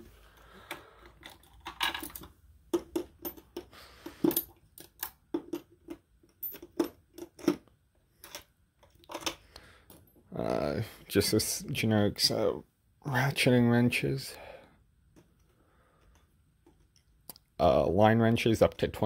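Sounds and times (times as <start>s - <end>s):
metal wrenches clinking: 1.2s - 7.6s.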